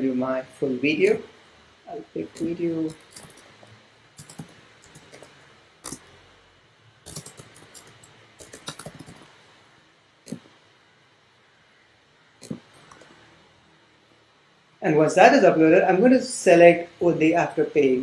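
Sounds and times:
typing on computer keyboard: 0:02.4 - 0:03.6, 0:04.2 - 0:06.0, 0:07.1 - 0:09.3.

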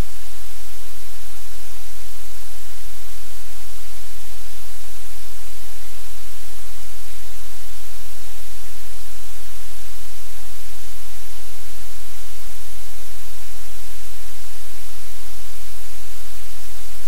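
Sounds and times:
static hiss: 0:00.0 - 0:17.0.

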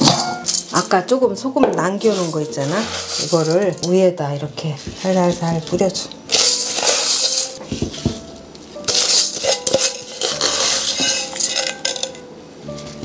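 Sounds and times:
salt grains pouring into glass jar: 0:06.3 - 0:07.6, 0:08.9 - 0:12.1.

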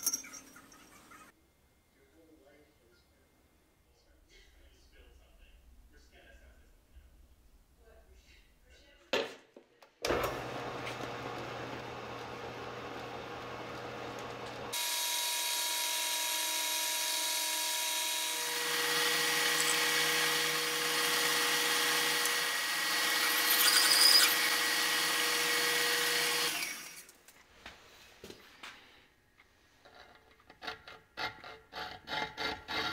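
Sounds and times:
metal lathe whining: 0:17.6 - 0:27.1.

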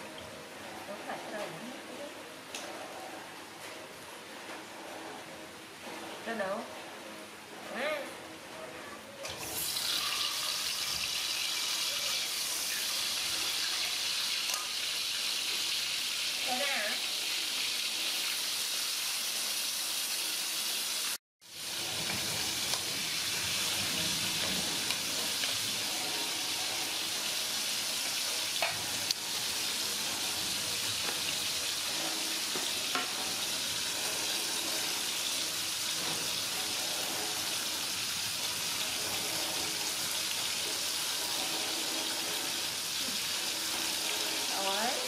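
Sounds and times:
fish sizzling in hot oil: 0:09.4 - 0:45.0.

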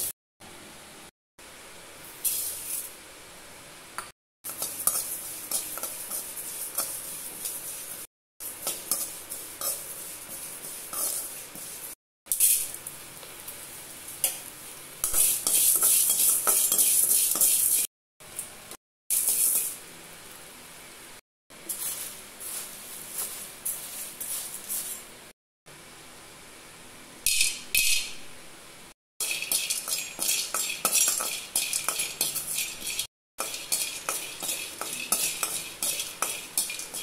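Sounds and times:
spatula scraping seeds in a pan: 0:04.5 - 0:17.9, 0:19.1 - 0:19.8, 0:21.7 - 0:25.1, 0:29.2 - 0:37.0.

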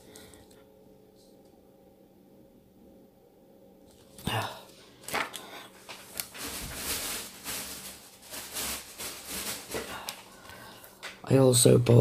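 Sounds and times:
packaging rustling: 0:05.0 - 0:11.2.

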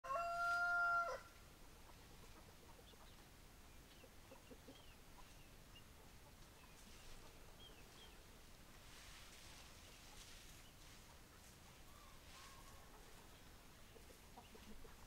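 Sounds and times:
rooster crowing: 0:00.0 - 0:01.4.

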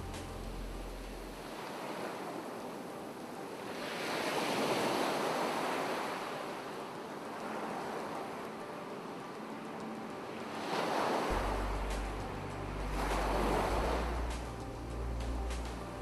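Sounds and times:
ocean waves breaking ashore: 0:00.0 - 0:16.0
low rumble: 0:11.3 - 0:16.0.

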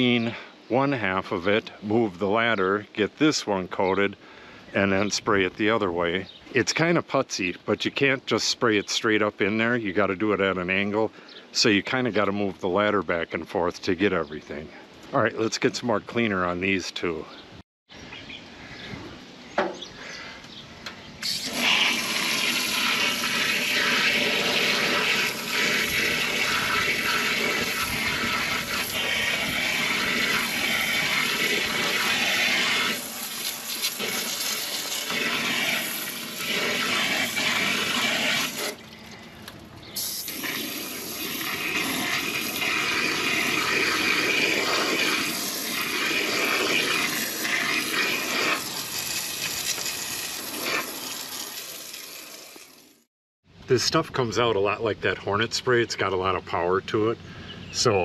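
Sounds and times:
hose water spraying against siding: 0:21.2 - 0:39.0, 0:39.9 - 0:53.1.

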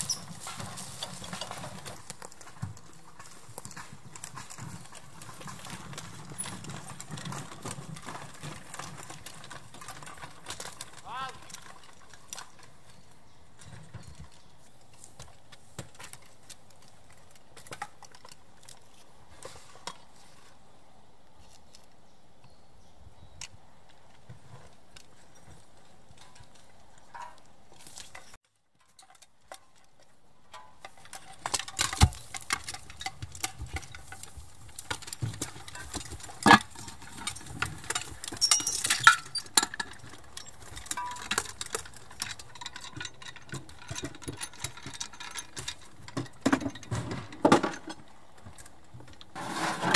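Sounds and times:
gear clinking and rattling: 0:00.0 - 0:19.0, 0:24.6 - 0:49.2
metallic clanks and knocks: 0:28.1 - 0:48.1.

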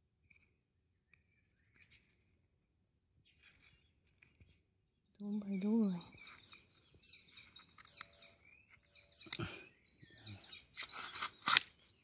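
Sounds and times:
small birds chirping: 0:00.3 - 0:12.0
tape being pulled off can: 0:10.8 - 0:11.8.

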